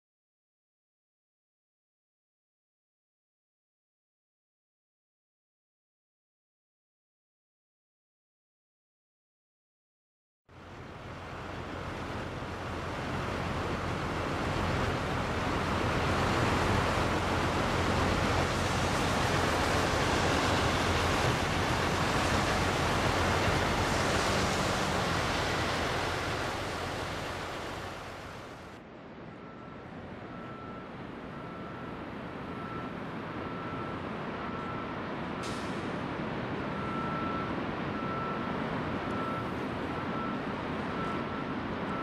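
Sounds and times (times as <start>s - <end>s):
waterfall roaring: 11.0s - 28.8s.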